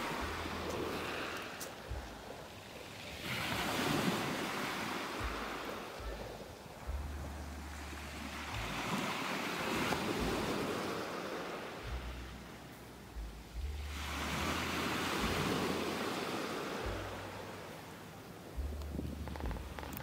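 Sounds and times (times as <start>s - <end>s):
waves washing up pebble beach: 0.0s - 12.3s, 13.8s - 17.9s
wind buffeting microphone: 0.0s - 12.5s, 18.4s - 20.0s.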